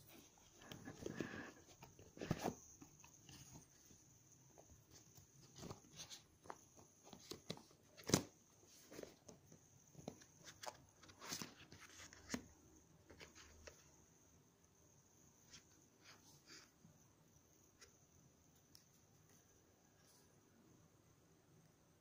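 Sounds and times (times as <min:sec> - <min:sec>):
cardboard box handling noises: 0:00.2 - 0:04.0, 0:04.6 - 0:12.5.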